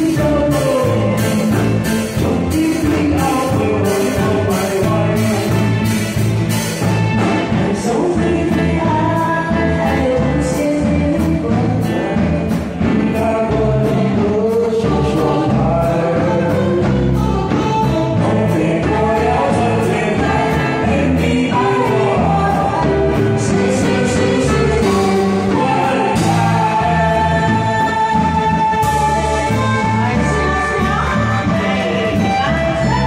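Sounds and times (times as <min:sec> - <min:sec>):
man singing: 0:00.0 - 0:06.5, 0:07.1 - 0:33.0
amplified backing music: 0:00.0 - 0:33.0
woman singing: 0:07.4 - 0:33.0.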